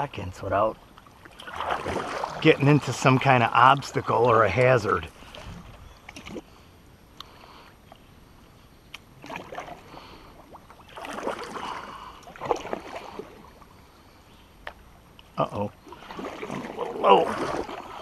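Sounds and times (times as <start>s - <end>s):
paddle strokes in water: 1.1s - 6.6s, 9.2s - 13.9s, 15.8s - 18.0s.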